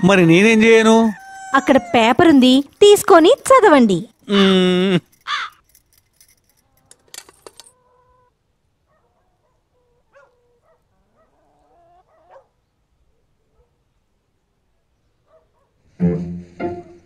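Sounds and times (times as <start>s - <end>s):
chickens clucking: 9.8s - 12.4s.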